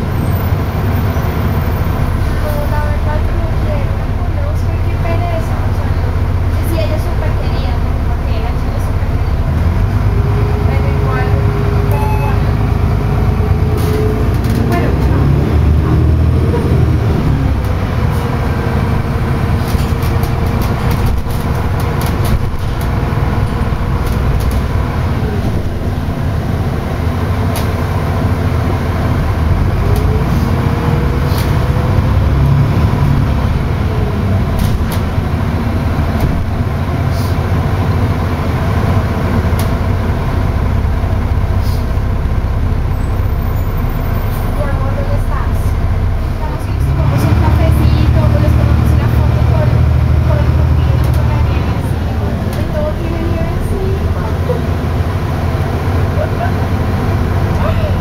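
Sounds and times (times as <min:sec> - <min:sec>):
bus engine drone: 0:00.0 - 0:58.0
clicks and rattles of bus fittings: 0:13.7 - 0:15.1, 0:19.2 - 0:25.8, 0:27.4 - 0:27.9, 0:34.5 - 0:35.4, 0:36.0 - 0:36.7, 0:39.4 - 0:39.9.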